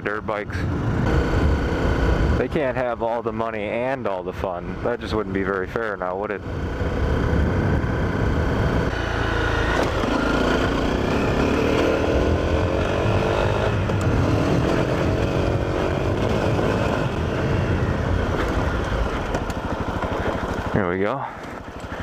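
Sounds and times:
motorcycle engine accelerating: 0.5s - 22.0s
wind noise on microphone: 6.4s - 9.1s, 11.0s - 19.7s.

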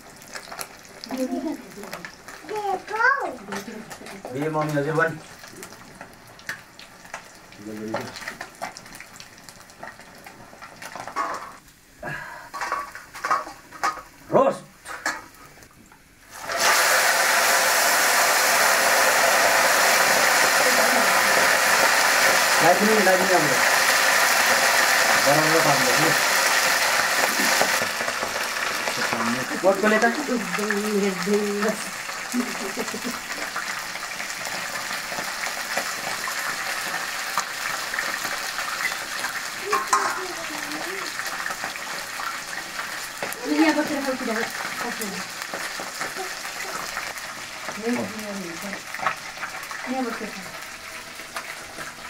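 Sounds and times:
fish sizzling in hot oil: 0.0s - 52.0s
pots and utensils clinking: 10.8s - 11.6s, 12.5s - 14.1s, 14.8s - 15.3s, 34.4s - 50.2s.

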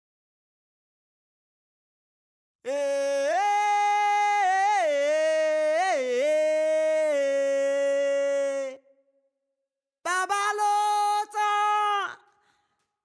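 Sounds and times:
person singing wordless melody: 2.7s - 9.0s, 10.0s - 12.4s.

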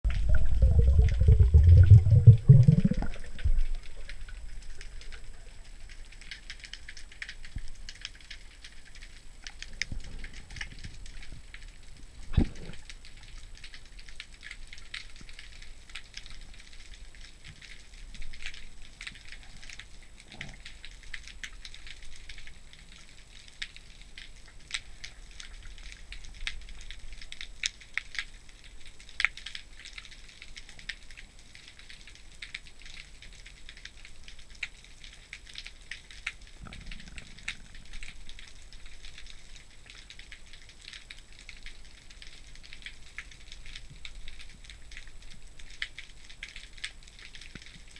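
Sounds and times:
snapping shrimp clicks underwater: 0.1s - 22.6s.

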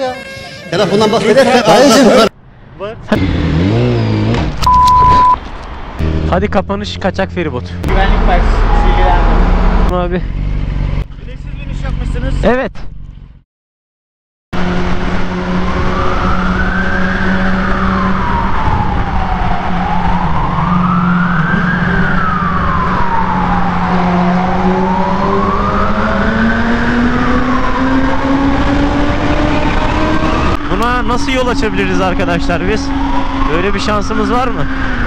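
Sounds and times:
motorcycle engine drone: 6.0s - 13.4s, 14.6s - 35.0s
ambulance siren wailing: 7.9s - 9.9s, 15.5s - 35.0s.

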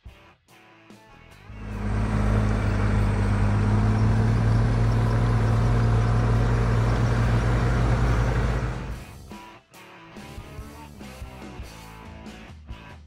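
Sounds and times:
vehicle engine humming: 1.5s - 9.4s.

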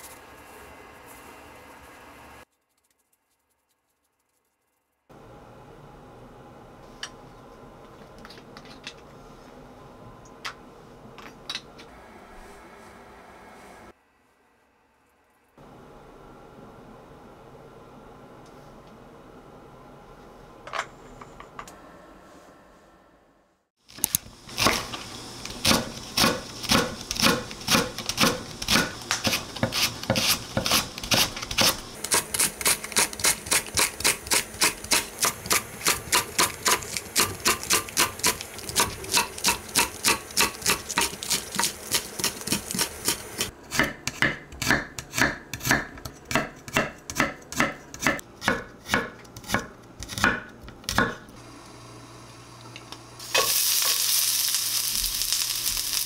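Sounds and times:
knife chopping on wooden board: 38.8s - 51.2s.

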